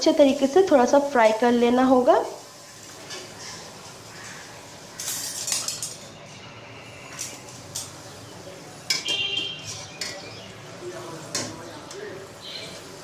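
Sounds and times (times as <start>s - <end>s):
metal spatula scraping pot: 8.9s - 10.3s.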